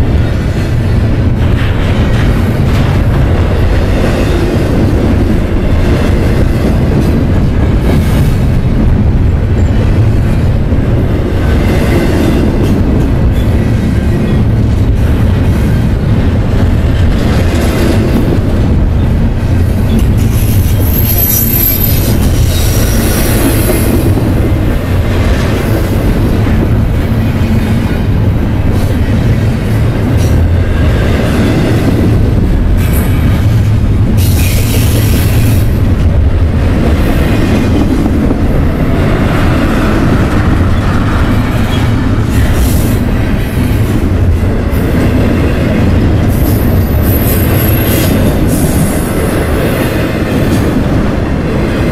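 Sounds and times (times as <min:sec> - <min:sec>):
train wheels rumbling on rail: 0:00.0 - 0:51.9
wheel squeals: 0:19.9 - 0:23.2.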